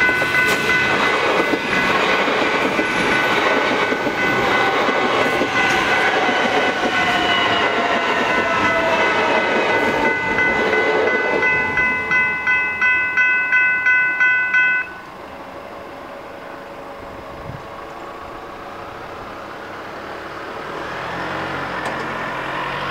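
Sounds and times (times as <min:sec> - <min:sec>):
level crossing bells ringing: 0:00.0 - 0:15.1
electric train on rails: 0:00.0 - 0:22.9.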